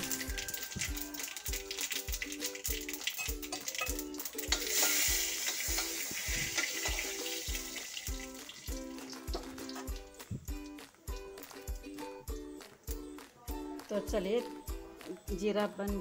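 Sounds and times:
seeds sizzling in hot oil: 0.0s - 10.9s
background music with steady beat: 0.0s - 16.0s
spoon stirring in pan: 0.4s - 10.8s.

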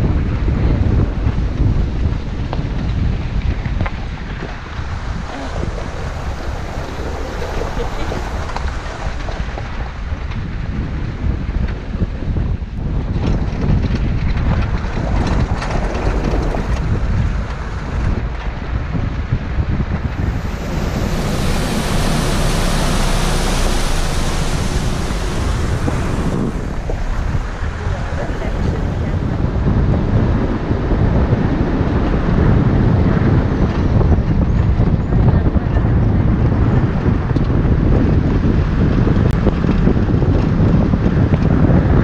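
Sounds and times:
wind buffeting microphone: 0.0s - 42.0s
tyre and engine rumble: 3.0s - 10.6s, 13.2s - 18.9s, 19.9s - 32.6s
rushing stream water: 4.6s - 9.8s, 20.0s - 29.5s.

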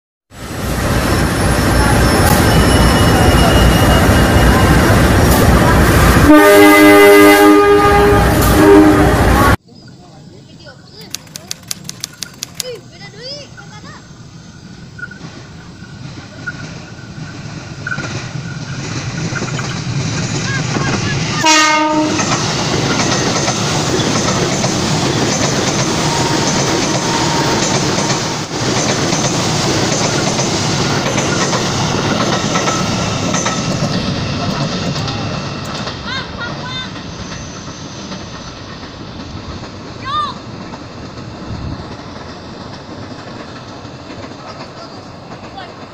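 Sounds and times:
train rumbling on rails: 0.3s - 45.9s
train horn blast: 6.0s - 9.6s, 21.4s - 22.4s, 26.0s - 28.4s
train wheels clickety-clack: 11.0s - 13.4s, 15.0s - 45.9s.

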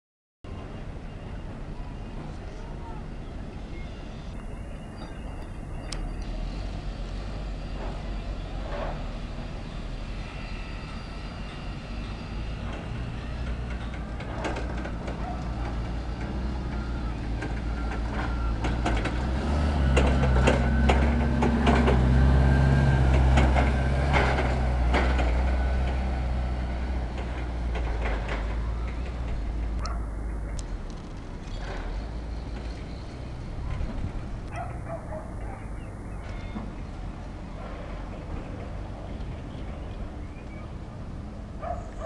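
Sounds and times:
forklift engine running: 3.4s - 41.8s
knocks and clanks: 12.6s - 22.2s, 23.1s - 26.1s, 27.1s - 29.9s.

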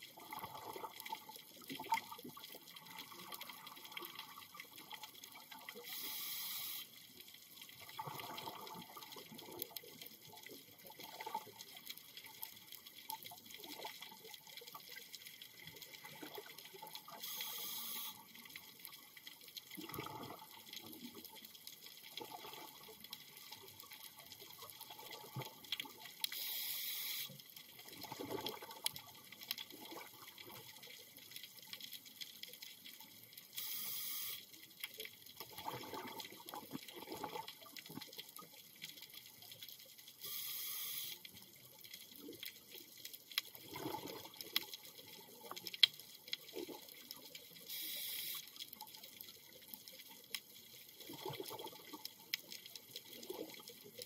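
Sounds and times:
steady high crackle: 0.0s - 54.0s
regulator inhalation hiss: 5.9s - 6.9s, 17.2s - 18.2s, 26.4s - 27.4s, 33.6s - 34.4s, 40.2s - 41.2s, 47.7s - 48.4s.

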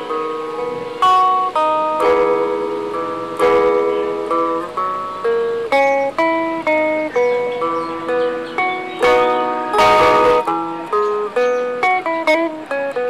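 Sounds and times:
electric guitar fingerstyle: 0.0s - 13.0s.

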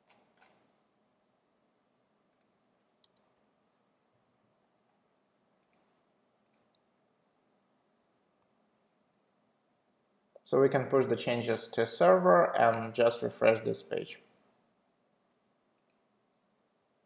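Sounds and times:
computer clicks: 2.3s - 3.6s, 5.1s - 6.8s, 15.8s - 16.0s.

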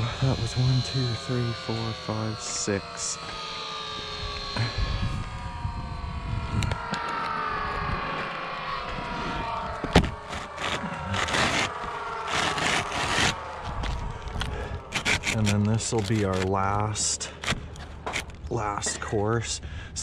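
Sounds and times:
shingles scraping: 9.8s - 18.4s.

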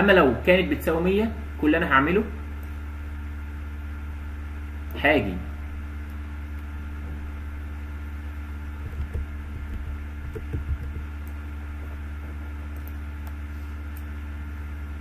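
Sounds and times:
low electrical hum: 0.0s - 15.0s
soft low bumps: 8.7s - 12.7s.

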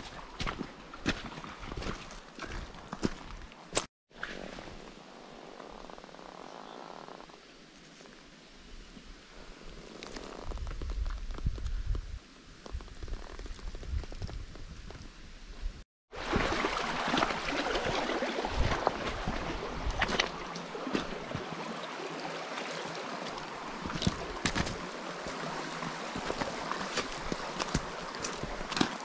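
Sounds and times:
footsteps on gravel: 0.0s - 3.9s, 23.2s - 29.0s
creek flowing over stones: 0.0s - 8.4s, 16.1s - 29.0s.

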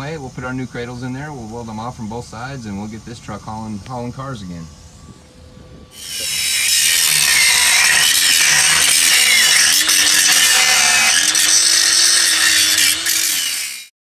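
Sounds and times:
angle grinder grinding steel: 6.0s - 13.9s.

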